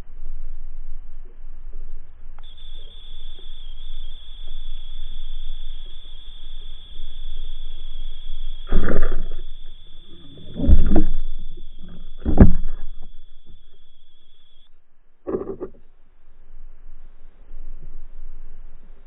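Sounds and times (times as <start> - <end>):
low rumble: 0.0 - 19.0
steady high whine: 0.0 - 19.0.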